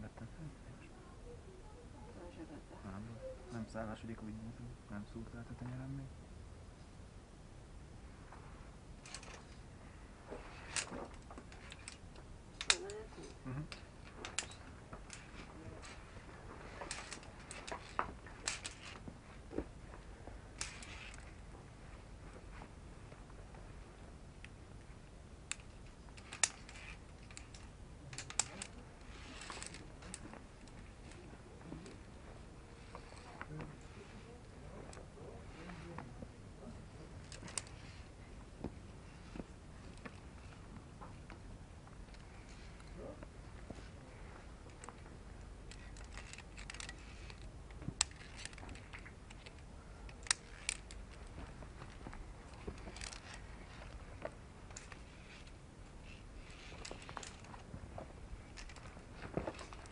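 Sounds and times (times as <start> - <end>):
climbing gear clinking: 9.0 - 9.6, 10.3 - 22.4, 25.4 - 35.0, 37.2 - 38.1, 45.7 - 59.9.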